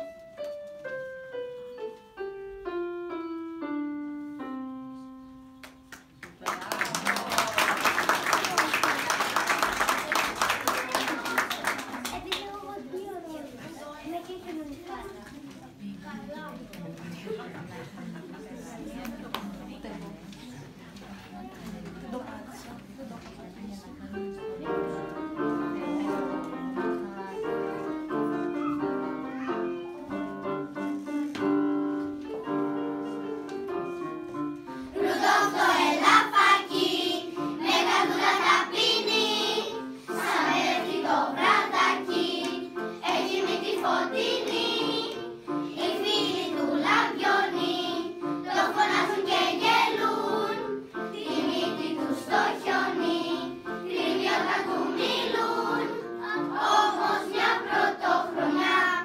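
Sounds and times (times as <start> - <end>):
electric keyboard playing: 0.0 - 6.2
children's choir singing: 31.9 - 59.0.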